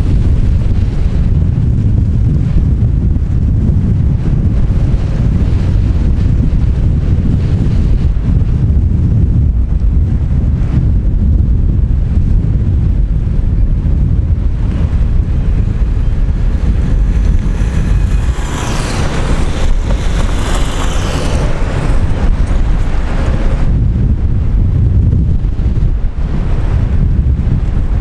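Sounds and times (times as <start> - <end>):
wind buffeting microphone: 0.0 - 28.0
hissing rush: 14.5 - 23.7.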